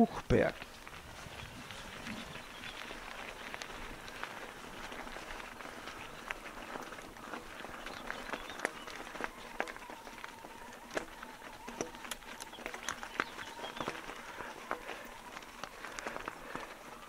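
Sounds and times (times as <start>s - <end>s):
raindrops ticking on camera: 0.3s - 17.0s.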